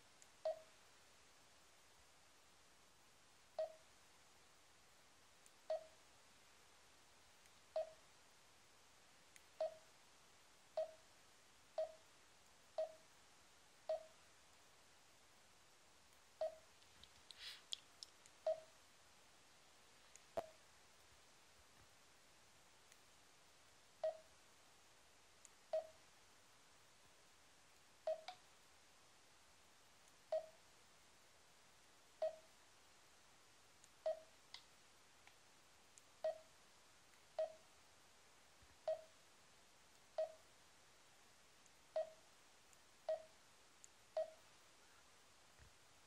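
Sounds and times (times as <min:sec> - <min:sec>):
faint clicks: 0:16.1 - 0:18.8, 0:22.8 - 0:23.1.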